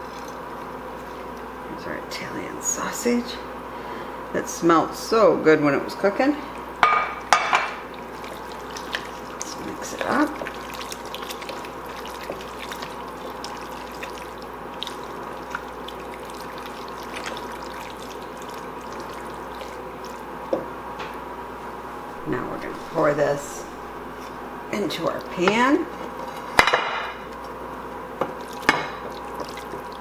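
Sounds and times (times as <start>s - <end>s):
steady background hum: 0.0s - 30.0s
spatula stirring wet food in pot: 7.2s - 20.8s, 22.3s - 30.0s.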